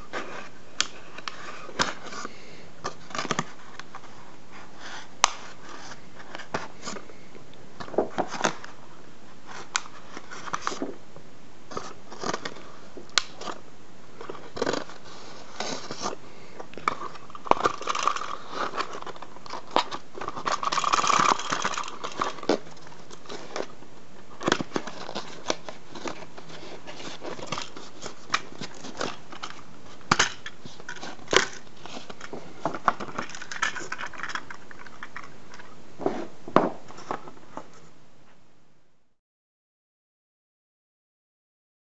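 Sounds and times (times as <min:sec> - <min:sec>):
toy packaging clicks and scrapes: 0:09.5 - 0:10.8, 0:14.2 - 0:16.2, 0:16.8 - 0:23.8, 0:24.4 - 0:35.8
cardboard crinkling rustle: 0:24.4 - 0:35.3.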